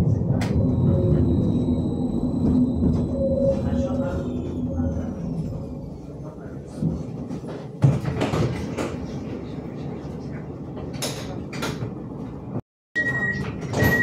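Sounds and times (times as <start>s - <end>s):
high door warning beep: 13.0s - 14.0s.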